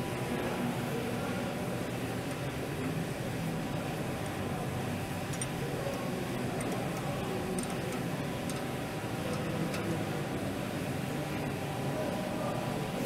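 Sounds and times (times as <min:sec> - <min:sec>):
low background hum: 0:00.0 - 0:13.0
faint metallic wrench clicks: 0:05.3 - 0:06.0, 0:06.6 - 0:08.7.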